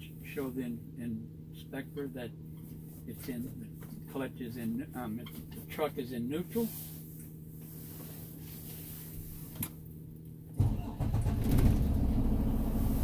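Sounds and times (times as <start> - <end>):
diesel engine starting and idling: 10.6 - 13.0.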